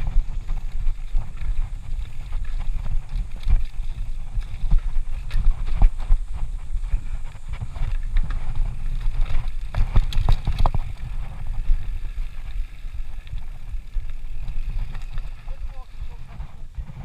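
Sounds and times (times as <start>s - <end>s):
bike rattling over rocks: 0.0s - 17.0s
wind rumble on microphone: 0.0s - 17.0s.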